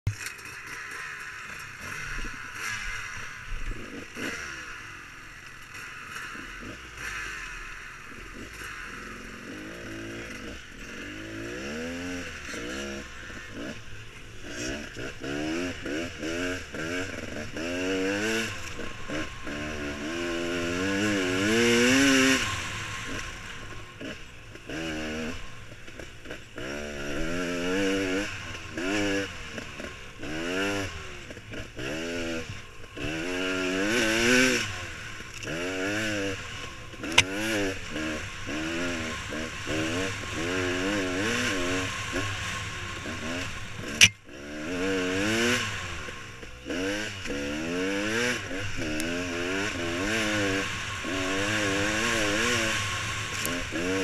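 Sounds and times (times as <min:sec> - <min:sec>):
bike knocks and clatter: 0:00.1 - 0:02.3
dirt bike engine revving: 0:00.1 - 0:54.0.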